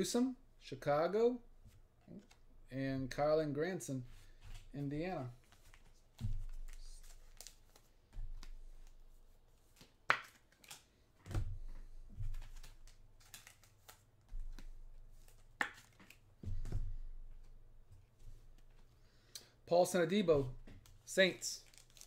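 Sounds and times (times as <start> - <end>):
cards thumping on table: 5.5 - 8.9, 9.8 - 17.5
cards clicking: 9.8 - 10.9, 12.3 - 16.2.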